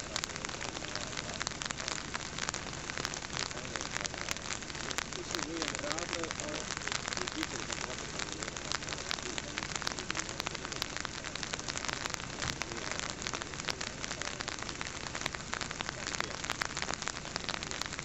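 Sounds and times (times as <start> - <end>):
rain pattering: 0.0 - 18.0.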